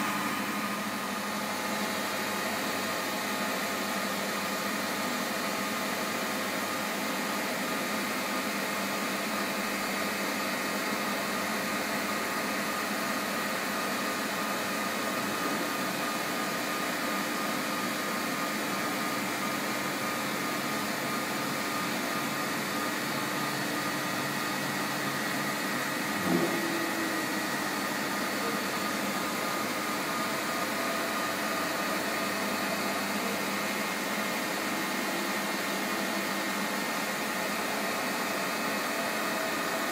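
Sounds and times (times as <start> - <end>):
milling machine humming and whining: 0.0 - 39.9
knock: 26.2 - 26.8.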